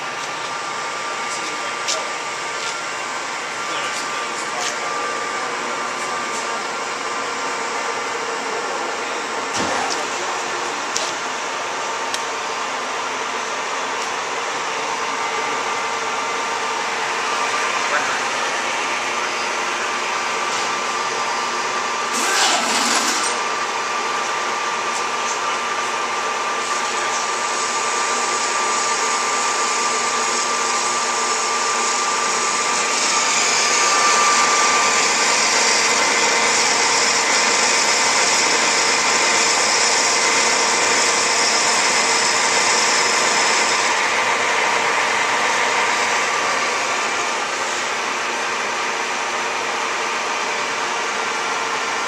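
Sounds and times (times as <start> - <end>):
metal lathe whirring: 0.0 - 52.0
lathe tool cutting metal: 12.5 - 52.0.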